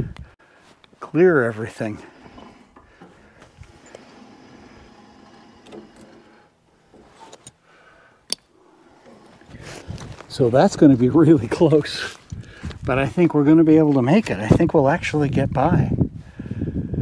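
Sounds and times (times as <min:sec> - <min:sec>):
sawmill head rolling on track: 0:01.3 - 0:07.4, 0:08.6 - 0:11.5.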